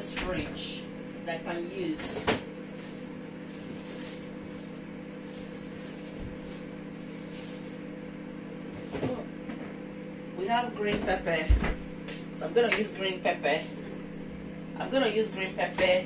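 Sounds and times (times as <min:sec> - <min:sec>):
refrigerator electrical hum: 0:00.0 - 0:16.0
items rustling and clicking on shelves: 0:02.0 - 0:07.9.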